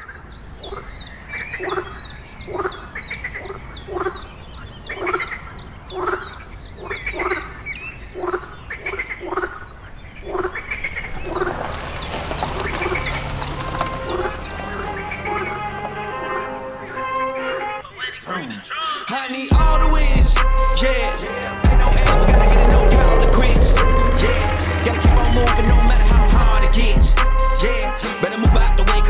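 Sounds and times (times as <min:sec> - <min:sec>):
frogs croaking: 0:00.0 - 0:19.2, 0:20.8 - 0:27.0
swell of noise: 0:20.8 - 0:27.1.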